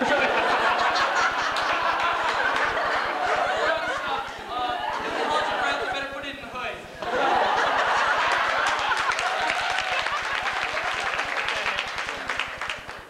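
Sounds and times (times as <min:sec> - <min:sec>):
audience clapping: 0:00.0 - 0:03.6, 0:07.7 - 0:13.0.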